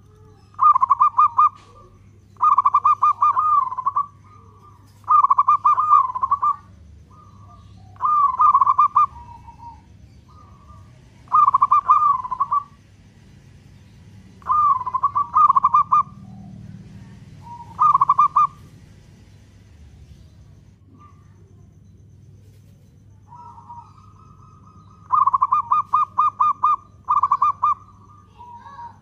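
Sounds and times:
dove cooing: 0.0s - 12.8s, 14.3s - 19.3s, 20.4s - 29.0s.

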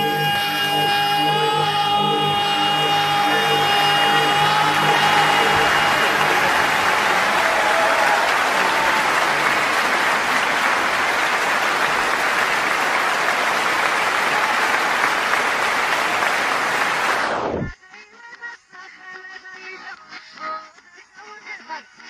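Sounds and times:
loud steady rushing noise: 0.6s - 7.9s.

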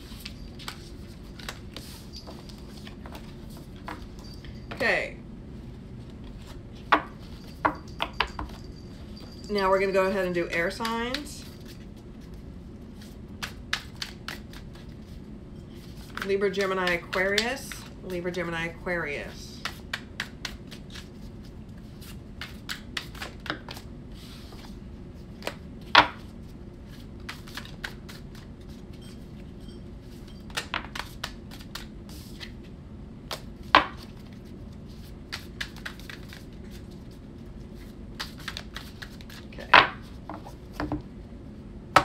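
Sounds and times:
cards being shuffled: 0.0s - 4.2s, 13.0s - 15.2s, 15.8s - 17.9s, 19.6s - 24.8s, 26.9s - 28.8s, 30.5s - 32.7s, 33.3s - 40.9s.

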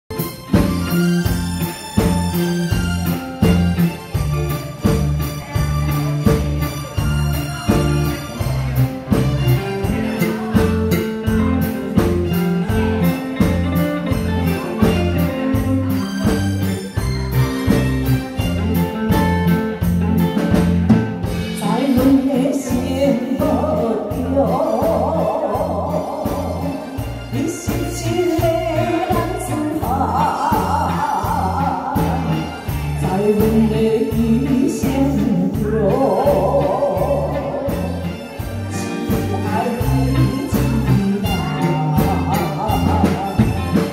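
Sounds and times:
drums: 0.0s - 43.9s
keyboard: 0.1s - 43.9s
live band with electric guitars: 0.1s - 43.9s
woman singing into microphone: 21.5s - 38.0s, 38.8s - 43.9s.

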